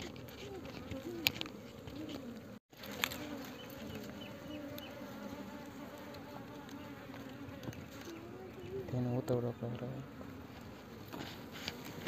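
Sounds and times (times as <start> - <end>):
honeybees buzzing: 0.0 - 12.0.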